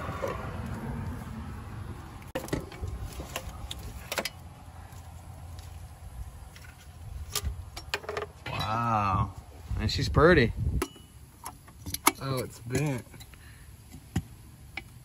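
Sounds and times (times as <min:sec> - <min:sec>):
clicks and clunks of metal parts: 0:02.3 - 0:04.4, 0:06.5 - 0:08.7, 0:10.8 - 0:13.4.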